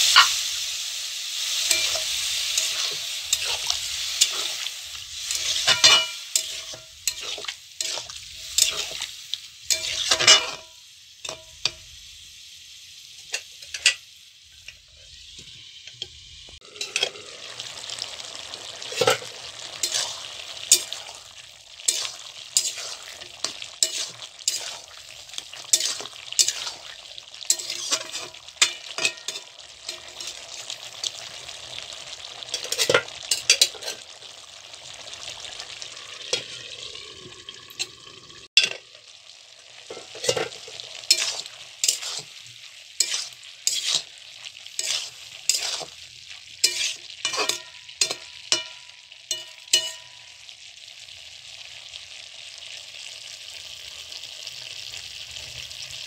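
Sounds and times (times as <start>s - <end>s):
curry sizzling: 0.0s - 56.0s
metal spatula scraping a pan: 1.4s - 11.8s, 14.6s - 17.3s, 18.8s - 30.8s, 32.4s - 34.1s, 38.6s - 38.9s, 39.9s - 46.0s, 46.6s - 50.2s.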